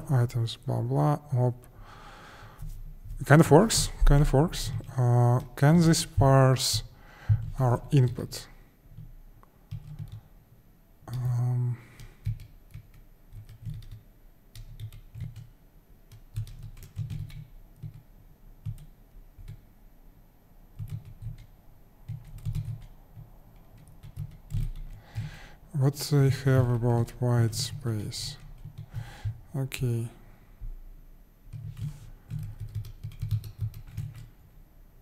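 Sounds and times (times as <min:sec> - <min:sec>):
keyboard typing: 0:09.0 - 0:10.3, 0:11.1 - 0:19.6, 0:20.8 - 0:25.4, 0:26.3 - 0:29.4, 0:31.5 - 0:34.4
man humming: 0:11.1 - 0:12.0.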